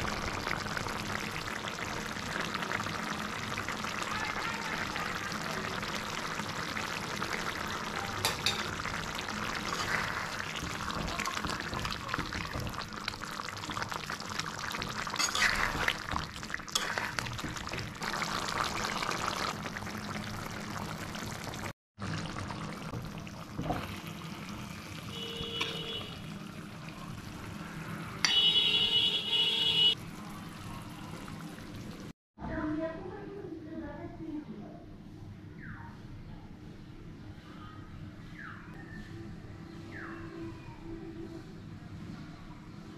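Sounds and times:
curry bubbling and sizzling: 0:00.0 - 0:32.2
metal spatula stirring: 0:09.6 - 0:12.7, 0:15.1 - 0:16.1, 0:16.7 - 0:17.9.

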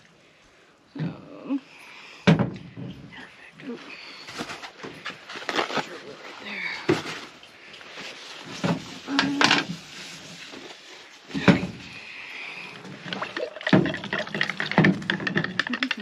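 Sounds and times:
clicks and rattles in plastic tumbler: 0:12.9 - 0:16.0.

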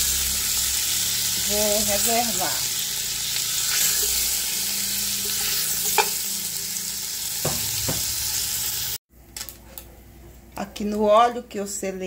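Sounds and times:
meat sizzling in hot oil: 0:00.0 - 0:09.0.

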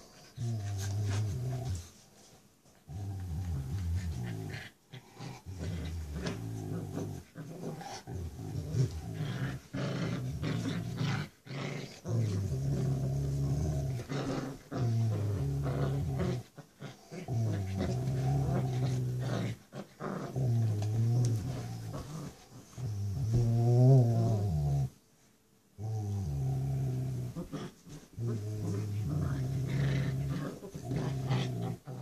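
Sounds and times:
dogs growling in play: 0:00.0 - 0:25.0, 0:25.8 - 0:32.0.

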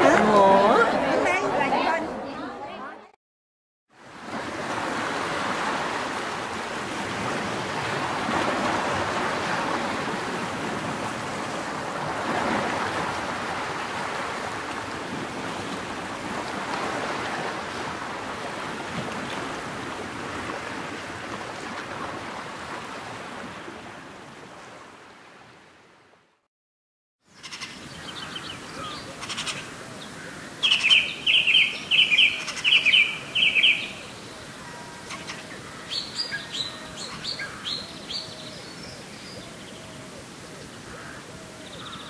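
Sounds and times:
water rushing: 0:04.0 - 0:26.4, 0:27.8 - 0:42.0.

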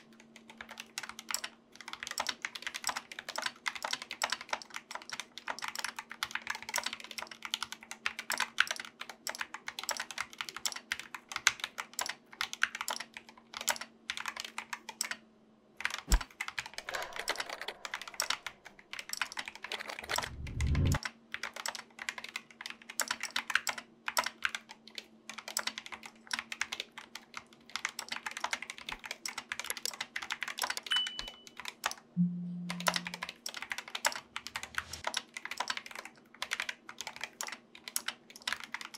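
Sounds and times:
mechanical keyboard typing: 0:00.0 - 0:15.2, 0:15.8 - 0:38.9
short low rumble: 0:20.2 - 0:21.0.

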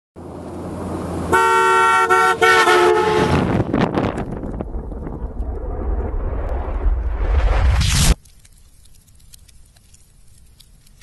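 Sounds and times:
vehicle horn honking: 0:01.3 - 0:03.5
low noisy rumble: 0:02.6 - 0:08.2.

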